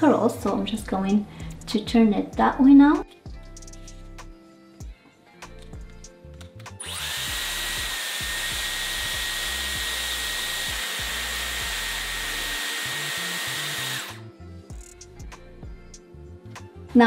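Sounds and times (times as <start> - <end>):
hair styler motor whine: 6.8 - 14.2.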